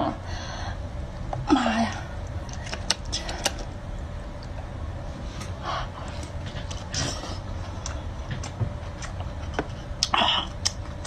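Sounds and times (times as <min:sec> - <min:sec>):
person chewing: 0:05.4 - 0:11.0.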